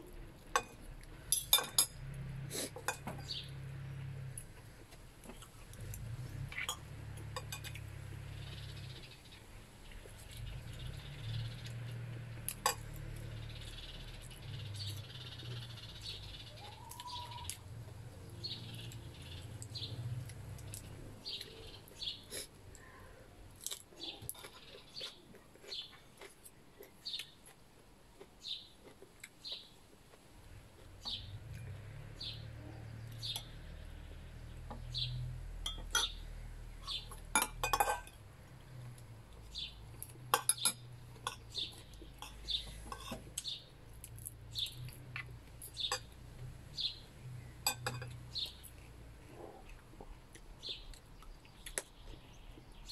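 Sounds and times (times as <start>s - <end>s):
cutlery clinking on plates: 0.6s - 2.0s, 2.7s - 3.4s, 6.6s - 7.8s, 12.5s - 12.9s, 35.7s - 36.2s, 36.9s - 38.2s, 40.3s - 43.4s, 47.6s - 48.2s.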